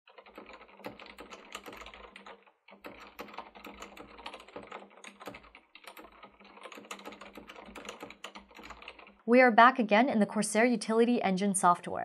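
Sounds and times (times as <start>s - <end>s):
soft mechanical keyboard typing: 0.1s - 9.3s.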